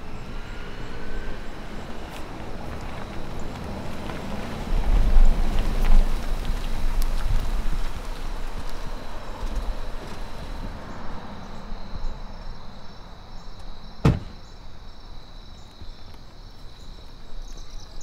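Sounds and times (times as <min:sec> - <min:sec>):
car engine and tyres: 0:00.0 - 0:18.0
high drone of insects: 0:00.0 - 0:18.0
car door shutting: 0:14.0 - 0:14.5.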